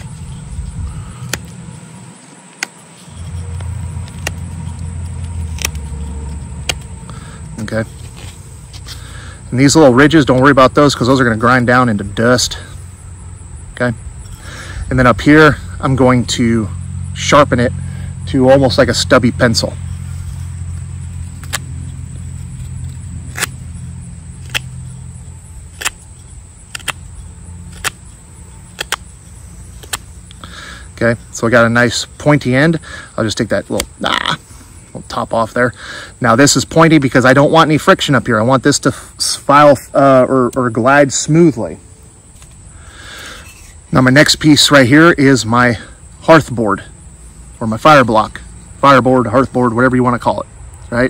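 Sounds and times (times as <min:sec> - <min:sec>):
knife cutting wood: 0:00.0 - 0:09.3, 0:19.8 - 0:30.6
low steady hum: 0:00.0 - 0:51.0
steady low rumble: 0:00.0 - 0:51.0.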